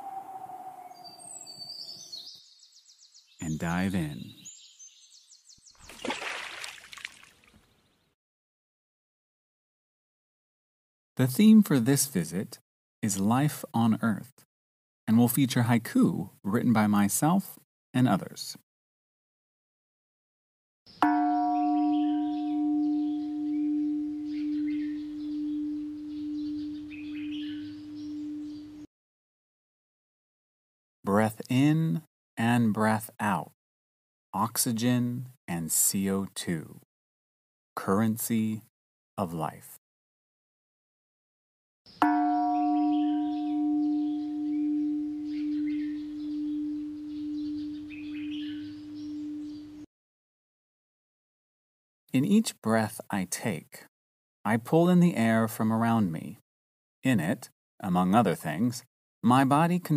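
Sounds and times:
faint bird chirps: 0:00.0 - 0:06.4, 0:21.6 - 0:28.9, 0:41.9 - 0:49.9
singing bowl ringing: 0:21.0 - 0:28.9, 0:42.0 - 0:49.9.

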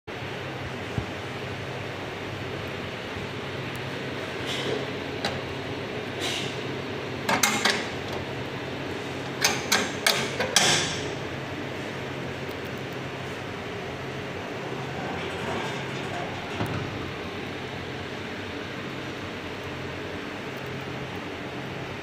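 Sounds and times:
steady low hum: 0:00.1 - 0:22.0
metallic clicks and knocks: 0:07.3 - 0:08.2, 0:09.2 - 0:11.2.

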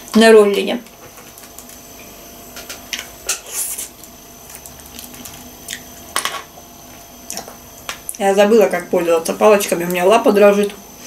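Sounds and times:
wet chewing: 0:03.9 - 0:05.9.

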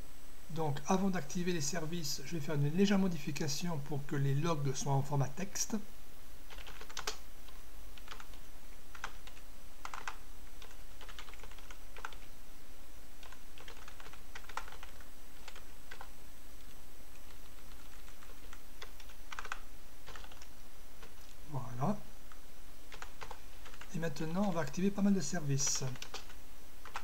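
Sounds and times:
steady low hum: 0:00.0 - 0:27.0
typing on computer keyboard: 0:06.5 - 0:12.3, 0:13.2 - 0:16.1, 0:17.2 - 0:21.2, 0:22.9 - 0:23.9, 0:25.8 - 0:27.0.

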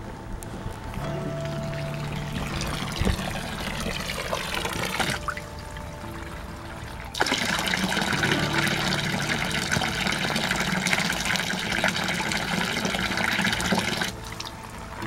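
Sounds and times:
fountain water splashing into trough: 0:01.9 - 0:05.6, 0:07.0 - 0:14.6.

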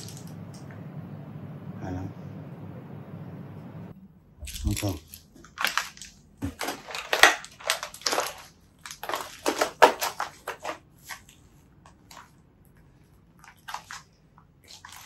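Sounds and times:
footsteps crunching on broken glass: 0:05.5 - 0:10.8.

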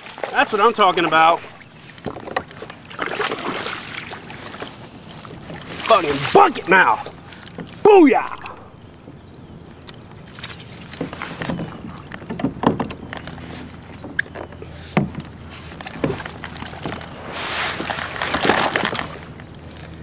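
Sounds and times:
water splashing: 0:00.0 - 0:09.0.

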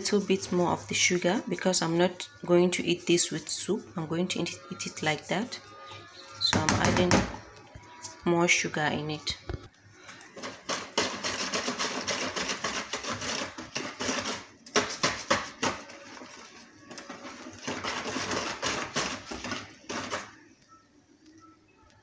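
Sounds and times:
whisk beating batter in bowl: 0:00.0 - 0:05.6, 0:10.2 - 0:20.4.

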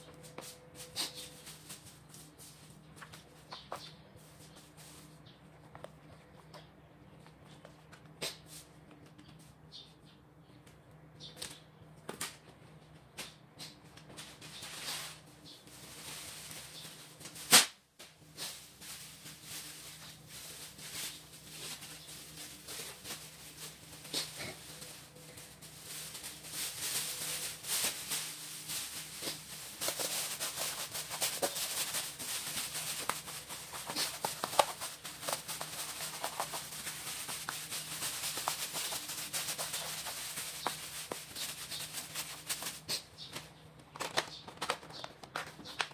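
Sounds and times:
plastic sheet crinkling: 0:14.2 - 0:45.9
sharp snap: 0:17.5 - 0:17.8.

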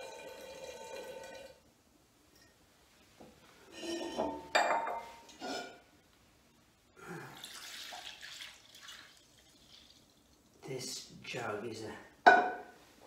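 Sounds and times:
liquid pouring and splashing: 0:07.3 - 0:10.7
glass jug clinking on metal pot: 0:12.3 - 0:12.7.

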